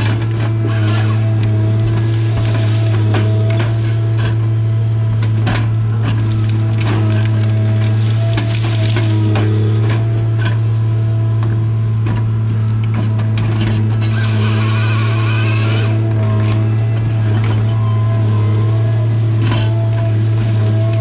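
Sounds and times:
harvester engine and hydraulics droning: 0.0s - 21.0s
wood cracking and snapping: 1.4s - 4.4s, 5.2s - 10.6s, 19.2s - 21.0s.

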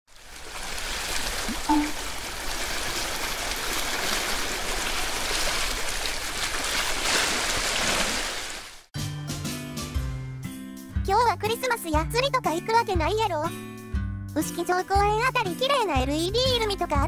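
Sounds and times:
seawater lapping and splashing: 0.1s - 8.9s.

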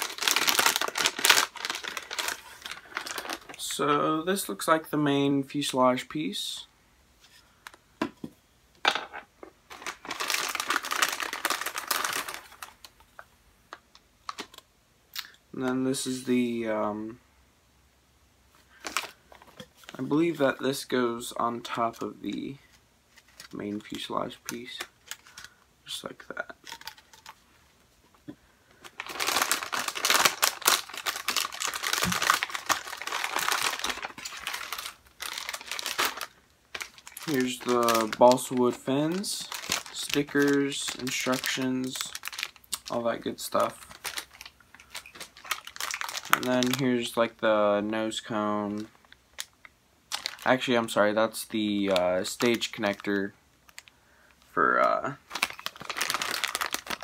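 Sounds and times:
plastic packaging crinkling: 0.0s - 3.9s, 9.7s - 13.0s, 13.7s - 14.6s, 18.7s - 20.4s, 21.7s - 25.6s, 26.4s - 27.4s, 28.7s - 47.4s, 48.3s - 54.0s, 54.8s - 57.0s.

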